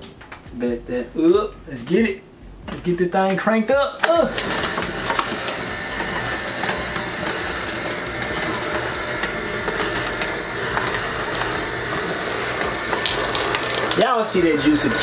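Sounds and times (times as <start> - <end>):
apples cracking in juicer: 4.0 - 15.0
juicer motor hum: 4.0 - 15.0.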